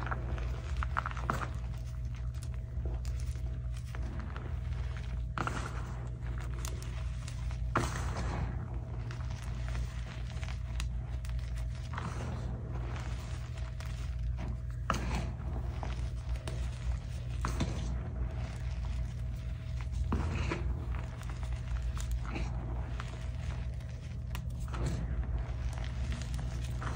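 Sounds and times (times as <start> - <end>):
chalk crumbling crackle: 0.0 - 26.9
chalk crunching swishes: 0.0 - 26.9.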